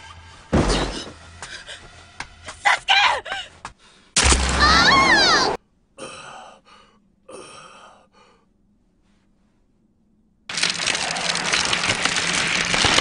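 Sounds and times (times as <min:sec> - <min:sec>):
loud cracking splitting sound: 0:04.2 - 0:04.9, 0:10.5 - 0:13.0.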